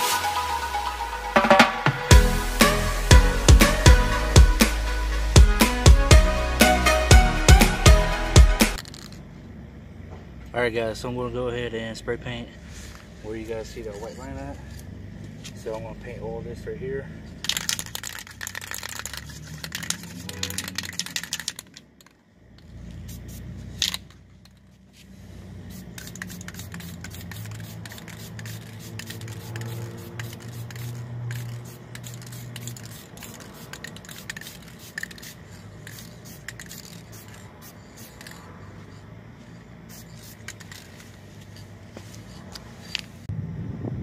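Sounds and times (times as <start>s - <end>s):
spray can rattling: 8.7s - 9.2s, 17.4s - 22.2s, 23.0s - 24.8s, 25.7s - 43.3s
spray paint hissing: 17.4s - 24.6s, 25.4s - 43.3s.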